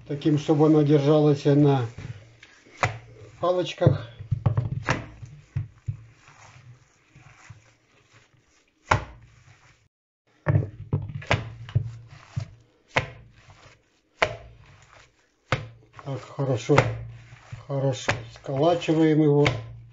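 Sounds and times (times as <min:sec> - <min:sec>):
hands slapping minced meat: 0:01.6 - 0:03.4, 0:04.8 - 0:06.6, 0:07.3 - 0:09.8, 0:11.2 - 0:19.9.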